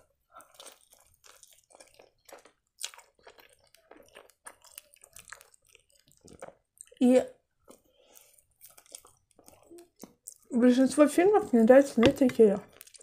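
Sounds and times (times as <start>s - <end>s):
chewing crisp pastry: 0.0s - 10.8s, 12.4s - 13.0s
wet mouth clicks: 7.7s - 10.5s.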